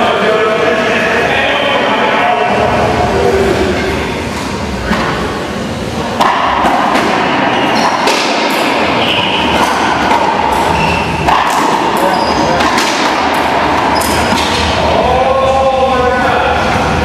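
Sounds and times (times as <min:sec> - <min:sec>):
racquetball hits echoing: 0:06.2 - 0:14.9.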